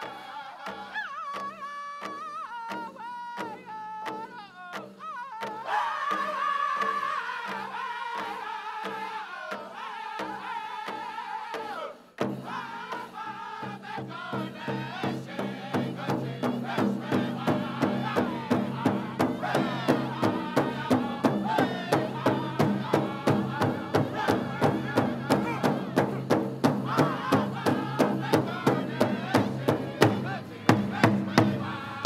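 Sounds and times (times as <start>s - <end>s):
group singing high vocables: 0.0s - 3.8s, 4.4s - 32.0s
big drum beating: 12.2s - 32.0s.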